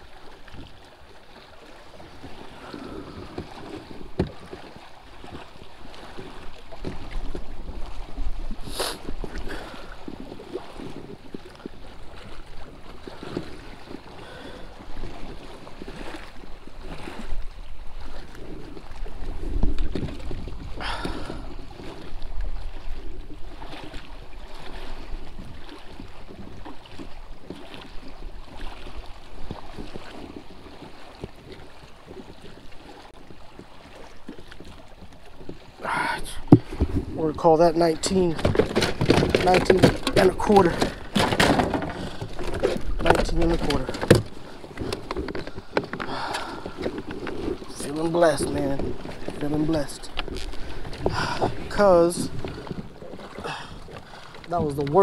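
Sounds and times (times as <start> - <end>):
water lapping against kayak hull: 0.0 - 55.0
wind buffeting microphone: 2.0 - 33.7, 34.5 - 55.0
sharp clicks and knocks: 38.4 - 47.5.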